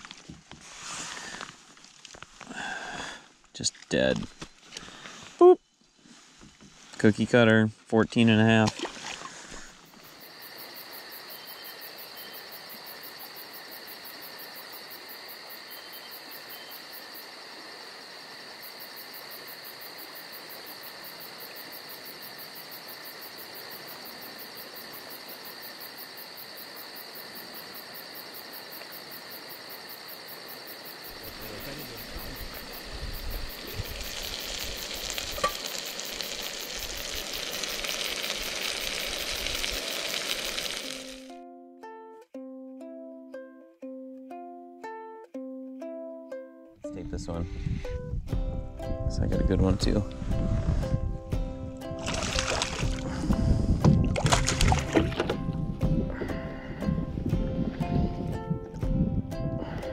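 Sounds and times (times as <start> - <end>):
camp stove hissing: 31.1 - 41.3.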